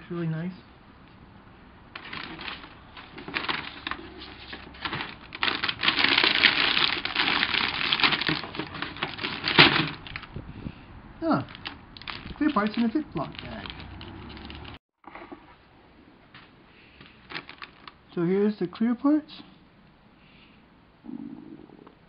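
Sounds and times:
plastic bags crinkling: 2.0 - 10.3, 11.4 - 14.8, 17.2 - 18.0.

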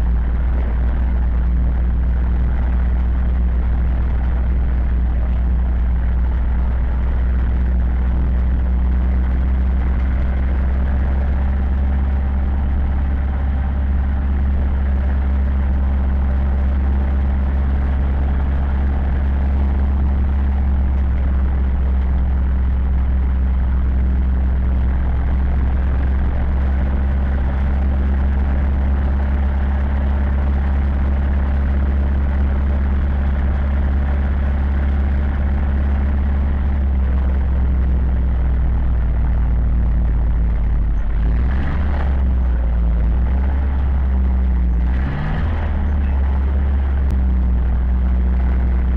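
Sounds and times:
tractor diesel engine droning: 0.0 - 48.9.

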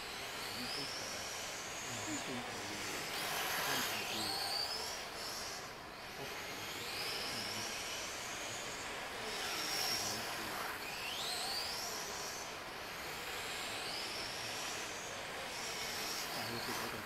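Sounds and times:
electric motors whining: 0.0 - 17.0.

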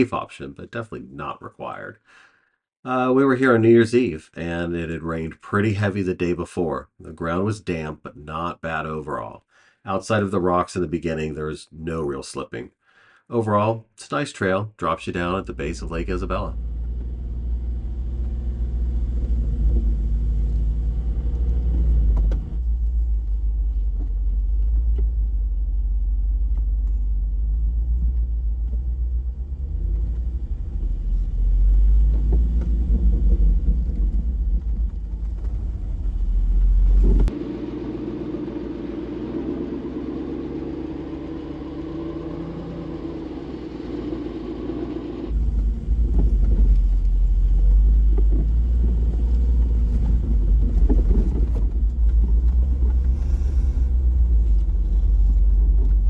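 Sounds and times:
smooth engine drone: 15.3 - 56.0
vehicle engine rumble on dirt: 15.5 - 56.0.

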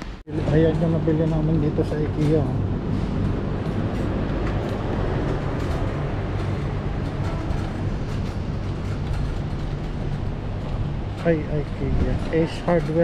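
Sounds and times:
shopping cart wheels rumbling: 0.3 - 13.0.

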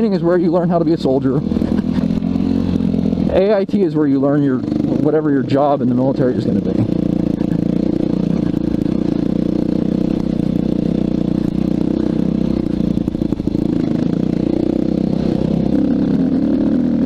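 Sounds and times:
dirt bike engine running: 0.0 - 17.0.

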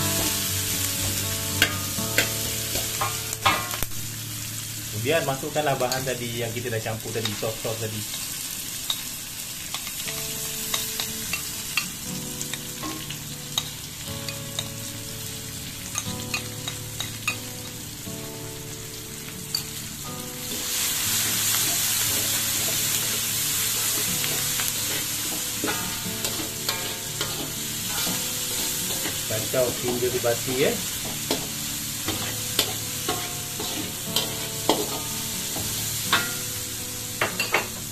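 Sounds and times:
food sizzling in hot oil: 0.0 - 37.9
utensils scraping a wok: 20.5 - 36.5.

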